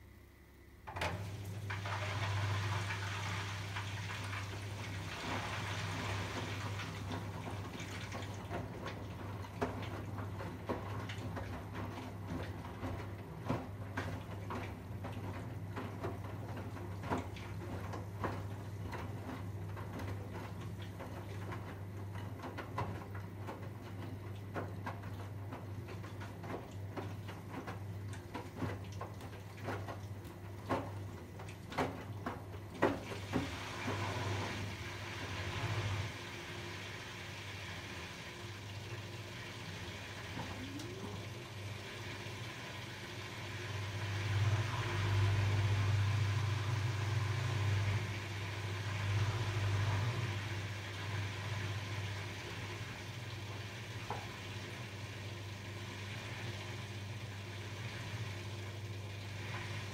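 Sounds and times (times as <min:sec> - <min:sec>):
washing machine drum turning: 0:00.8 - 0:36.8.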